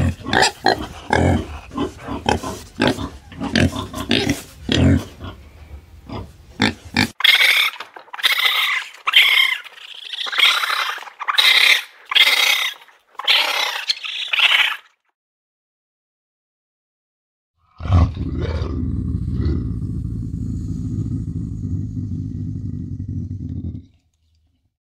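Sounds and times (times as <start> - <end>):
pig grunting: 0.0 - 13.9, 17.6 - 24.0
raccoon dog high-pitched calls: 7.2 - 15.0.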